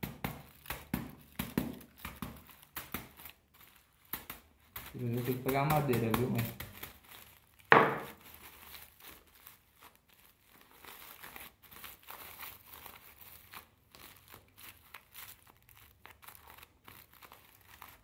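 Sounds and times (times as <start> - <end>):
aluminium foil crinkling: 0.0 - 18.0.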